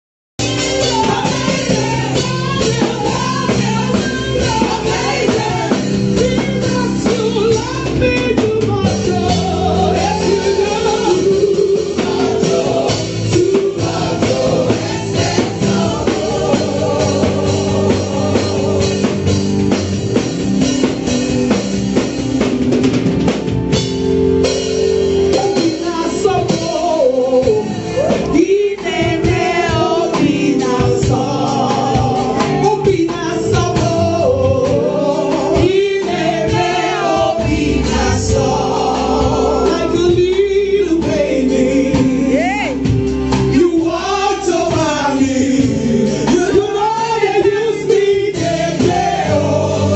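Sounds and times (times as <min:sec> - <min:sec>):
gospel band playing: 0:00.4 - 0:49.9
woman singing into microphone: 0:00.7 - 0:19.1, 0:25.4 - 0:43.0.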